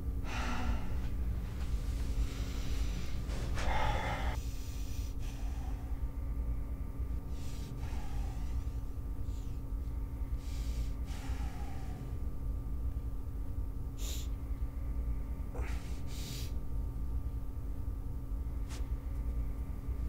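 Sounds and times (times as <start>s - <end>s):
low steady hum: 0.0s - 20.0s
man exhaling hard with effort: 0.2s - 1.1s, 3.6s - 6.0s, 15.5s - 16.6s.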